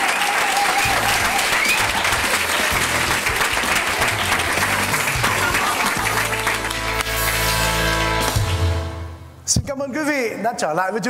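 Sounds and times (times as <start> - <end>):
audience applauding: 0.0 - 8.8
live band music: 0.9 - 9.4.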